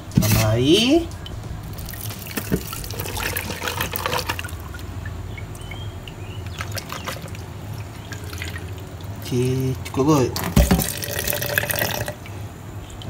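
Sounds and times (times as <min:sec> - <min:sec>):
tap water filling blender jar: 0:10.4 - 0:12.2.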